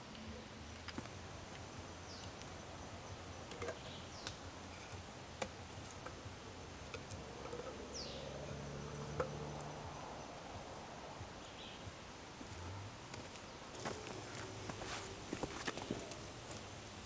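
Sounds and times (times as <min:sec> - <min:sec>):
forest insects: 0:00.0 - 0:17.0.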